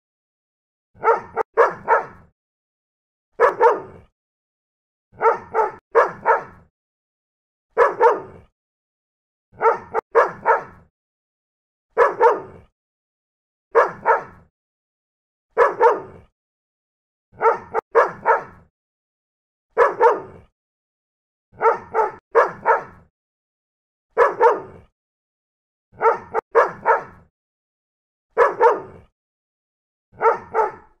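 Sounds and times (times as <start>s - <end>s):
small dog barking: 1.0s - 2.3s, 3.4s - 4.0s, 5.2s - 6.7s, 7.8s - 8.4s, 9.6s - 10.9s, 12.0s - 12.6s, 13.7s - 14.4s, 15.6s - 16.2s, 17.4s - 18.7s, 19.8s - 20.4s, 21.6s - 23.1s, 24.2s - 24.8s, 26.0s - 27.3s, 28.4s - 29.1s, 30.2s - 31.0s.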